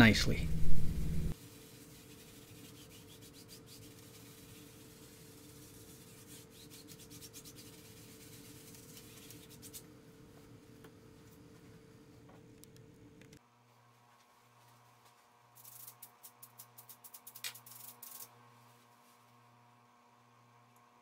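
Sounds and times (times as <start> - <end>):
paintbrush strokes on canvas: 1.2 - 9.7.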